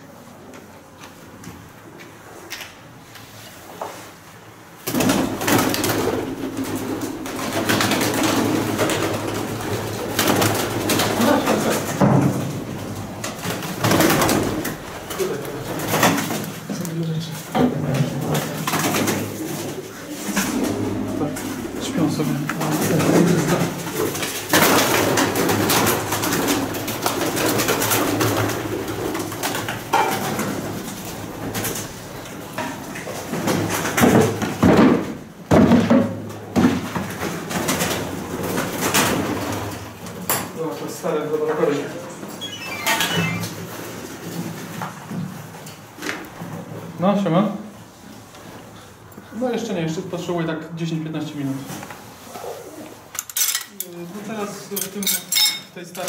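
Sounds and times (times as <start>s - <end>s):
wings clattering: 4.8s - 16.9s, 17.8s - 34.7s
pigeons cooing: 5.1s - 16.8s, 18.0s - 33.4s, 52.2s - 53.1s.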